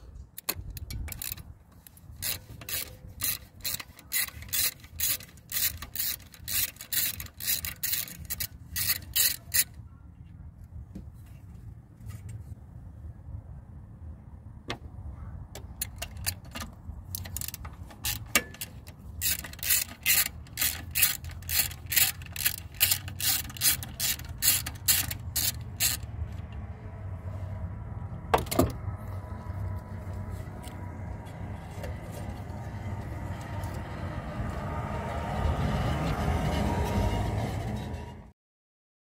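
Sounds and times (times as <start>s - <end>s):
socket ratchet clicking: 0.4s - 9.7s, 15.6s - 26.6s.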